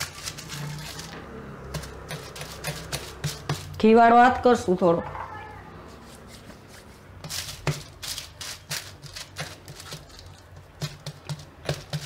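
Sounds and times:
plastic sheet crinkling: 0.0 - 1.2.

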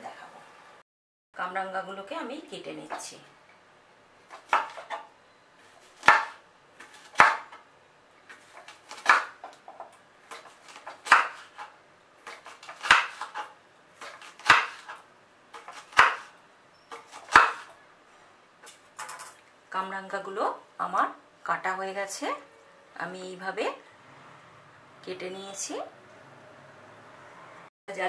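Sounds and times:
knife cutting fruit: 8.3 - 17.7.

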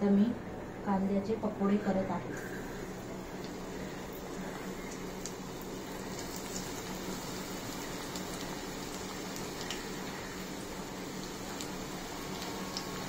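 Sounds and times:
batter frying in hot oil: 2.3 - 13.0
small crackles: 3.3 - 13.0.

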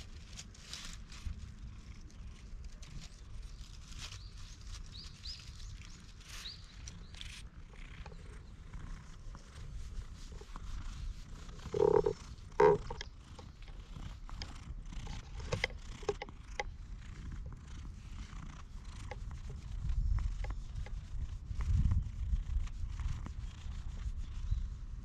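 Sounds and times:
low steady background noise: 0.0 - 25.0
faint high bird chirps: 3.4 - 7.4.

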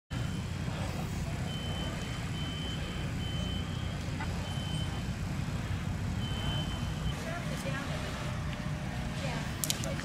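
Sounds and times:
reversing alarm beeping: 0.1 - 7.6.

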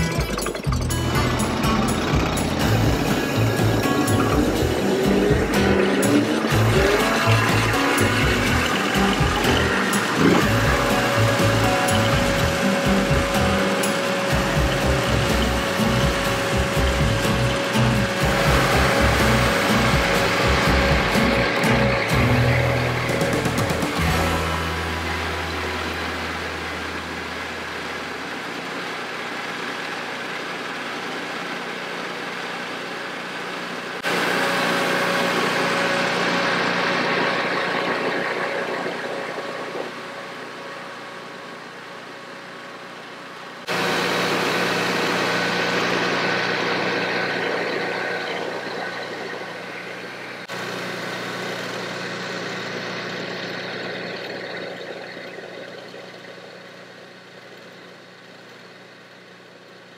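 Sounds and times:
chainsaw mill cutting log: 0.0 - 26.2, 43.7 - 54.6.

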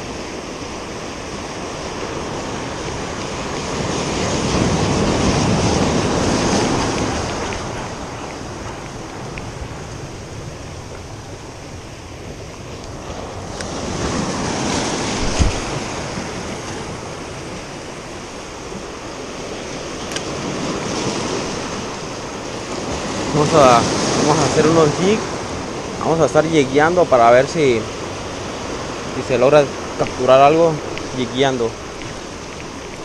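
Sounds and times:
surf breaking over rocks: 0.0 - 33.0
brief thump: 15.2 - 15.7.

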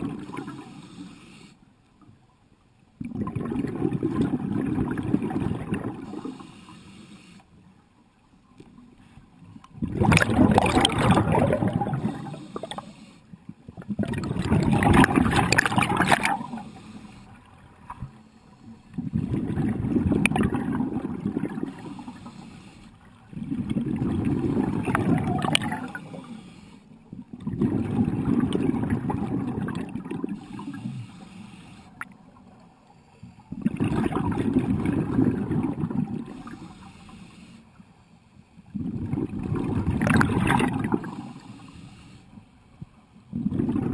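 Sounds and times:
scuba regulator exhaust bubbles: 0.0 - 1.0, 3.0 - 6.8, 9.7 - 17.0, 18.8 - 22.7, 23.3 - 26.3, 27.2 - 32.1, 33.5 - 36.9, 38.7 - 41.6, 43.3 - 43.9
diver inhaling: 0.6 - 1.6, 6.2 - 7.5, 16.4 - 17.4, 21.6 - 23.0, 25.8 - 27.0, 30.4 - 32.0, 36.3 - 37.8, 41.2 - 42.4.

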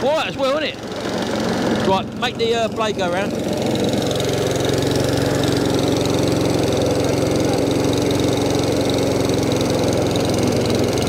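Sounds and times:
small mower engine running: 0.0 - 11.0.

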